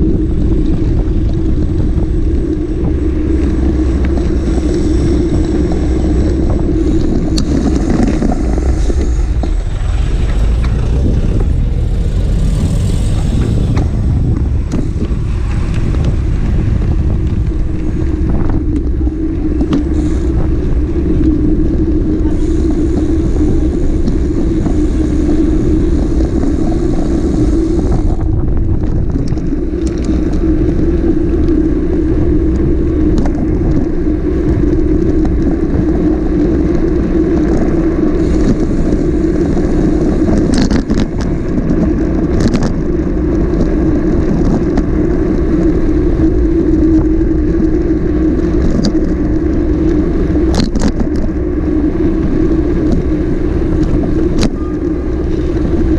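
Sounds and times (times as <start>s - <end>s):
constant low rumble: 0.0s - 55.9s
motorcycle engine running: 0.0s - 55.9s.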